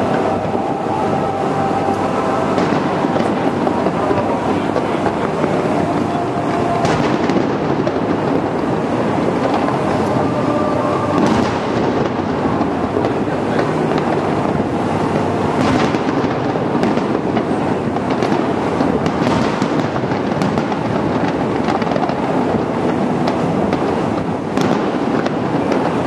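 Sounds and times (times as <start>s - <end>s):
loud firework bangs: 0.0s - 26.0s
fireworks popping: 1.9s - 26.0s.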